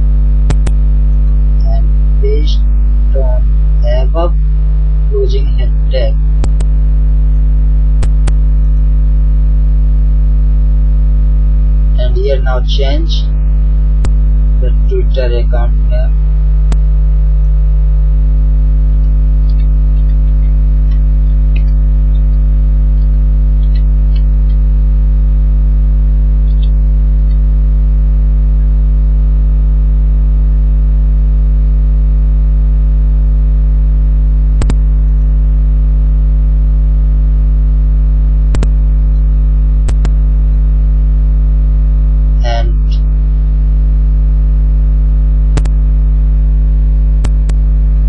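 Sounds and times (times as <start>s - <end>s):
electrical mains hum: 0.0s - 30.5s, 34.0s - 46.2s, 47.0s - 48.0s
keyboard typing: 0.5s - 0.7s, 6.4s - 6.7s, 8.0s - 8.4s, 39.9s - 40.2s
sharp clicks: 0.5s - 1.3s, 6.4s - 6.7s, 8.0s - 8.8s, 34.6s - 34.8s, 38.5s - 38.8s, 39.8s - 40.5s, 45.6s - 45.8s, 47.2s - 47.6s.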